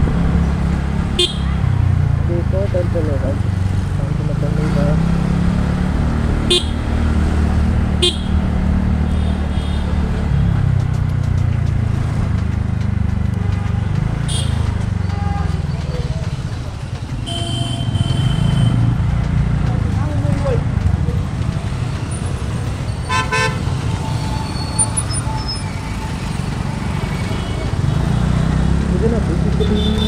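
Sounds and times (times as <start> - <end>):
motorcycle engine and road rumble: 0.0 - 30.0
horn honking: 1.1 - 1.6, 6.4 - 6.9, 8.0 - 10.1, 13.4 - 15.3, 17.2 - 19.0, 23.0 - 23.8, 29.6 - 30.0.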